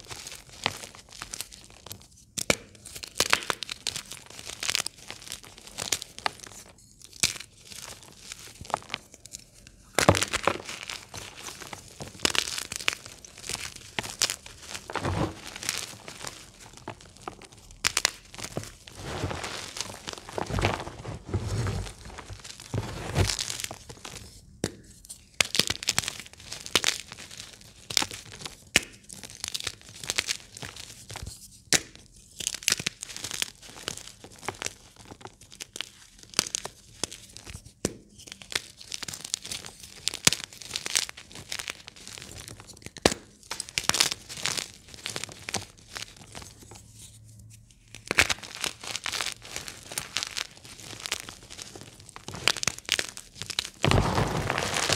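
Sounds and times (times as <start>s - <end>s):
hands crushing chalk blocks: 0.2s - 46.7s, 47.9s - 54.9s.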